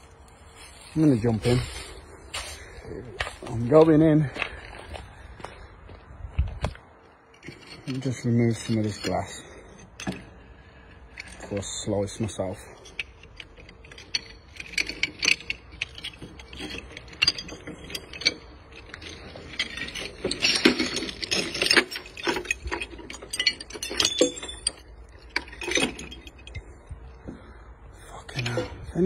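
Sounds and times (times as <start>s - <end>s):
glass shards clinking and scraping: 7.3s - 26.9s.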